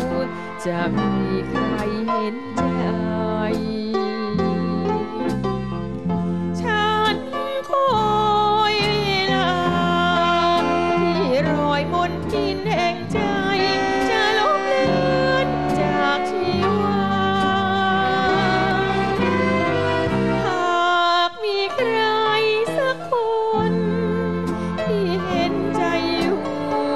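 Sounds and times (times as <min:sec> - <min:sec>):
woman singing with vibrato: 0:00.0 - 0:05.4, 0:06.6 - 0:26.9
band accompaniment: 0:00.0 - 0:21.0.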